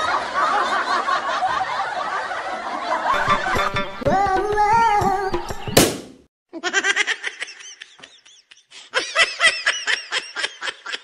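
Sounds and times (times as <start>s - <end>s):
balloon bursting bang: 5.8s - 6.3s
rapid rhythmic laughter: 6.6s - 11.0s.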